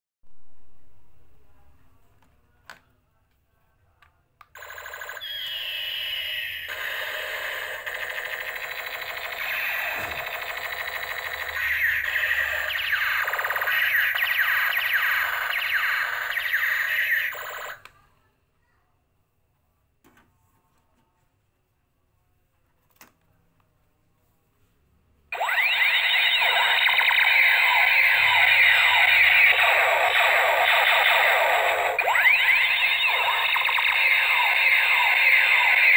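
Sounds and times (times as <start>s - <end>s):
toy pistol electronic sound effect: 4.6s - 17.9s, 25.4s - 35.9s.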